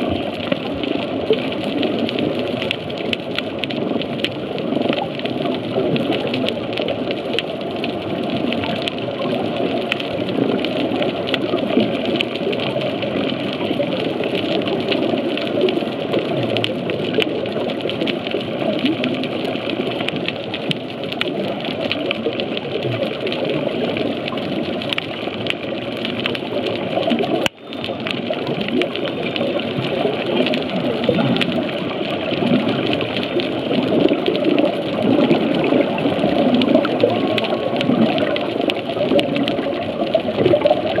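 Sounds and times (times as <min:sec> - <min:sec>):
underwater crackle of clicks: 0:00.0 - 0:41.0.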